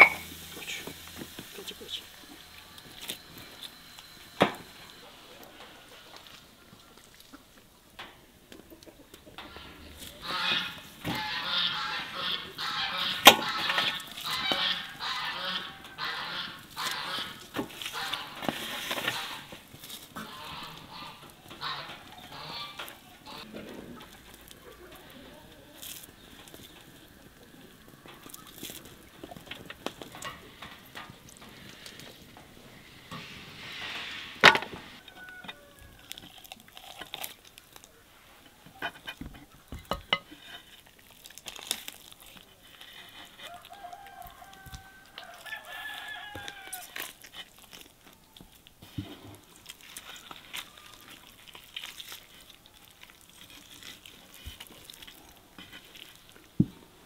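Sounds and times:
chickens clucking: 0.0s - 36.2s
rooster crowing: 34.9s - 36.5s, 43.4s - 47.0s.

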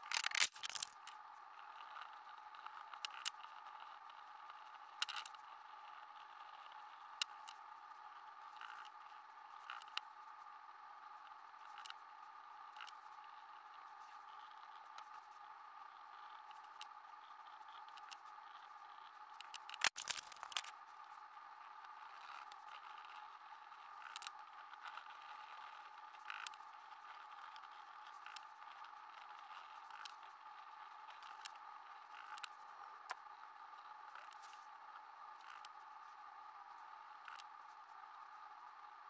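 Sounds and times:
faint hum: 0.0s - 39.0s.

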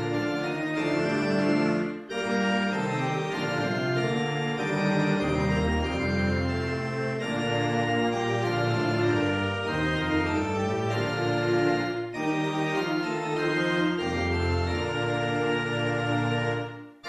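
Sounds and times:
organ sustained chords: 0.0s - 17.0s.

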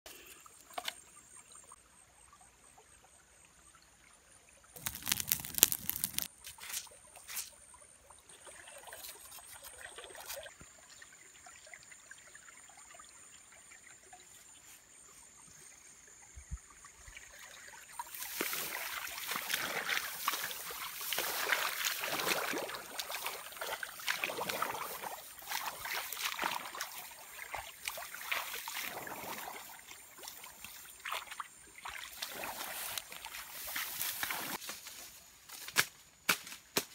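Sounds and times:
water splashing and dribbling: 0.1s - 34.8s
rice stalks rustling: 4.8s - 7.5s, 18.1s - 27.1s, 32.2s - 35.8s.

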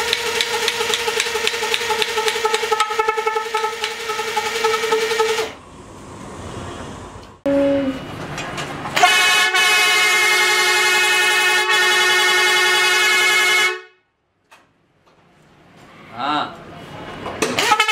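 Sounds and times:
truck air horn blast: 1.9s - 5.6s, 7.4s - 8.1s, 9.0s - 14.1s, 17.6s - 17.9s.

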